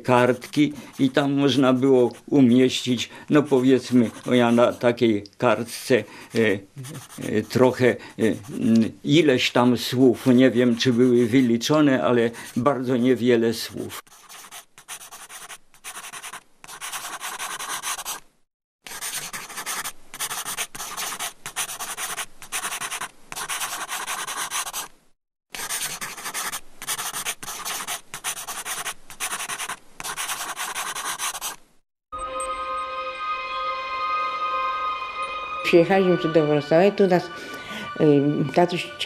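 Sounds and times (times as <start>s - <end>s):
pen scratching on paper: 0.3s - 4.9s, 6.8s - 8.8s, 9.9s - 11.7s, 13.6s - 18.2s, 18.9s - 25.0s, 25.6s - 31.6s
music: 32.1s - 39.0s.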